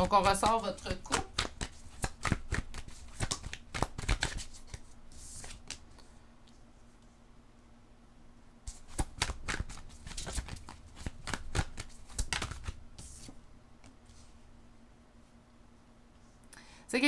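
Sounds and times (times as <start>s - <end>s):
cards being shuffled: 0.0s - 6.0s, 8.7s - 14.3s.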